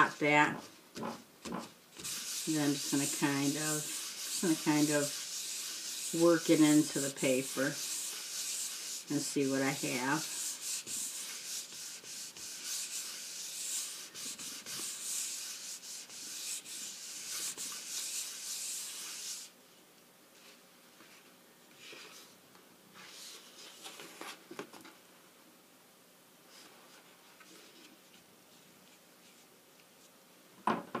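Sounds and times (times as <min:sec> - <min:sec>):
paper towel rubbing on cardstock: 0:00.0 - 0:19.5.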